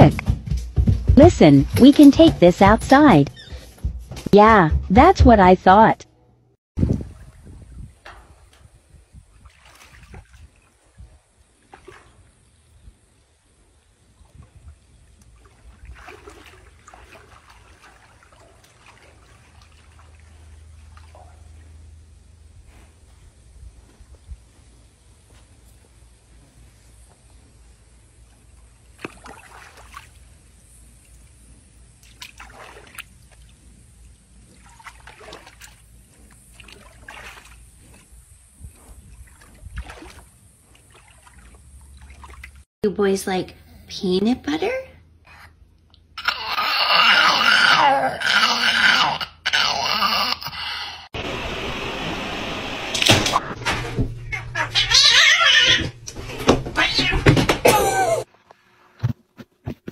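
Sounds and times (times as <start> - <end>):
water sloshing and splashing: 6.8 - 23.3, 25.0 - 42.7.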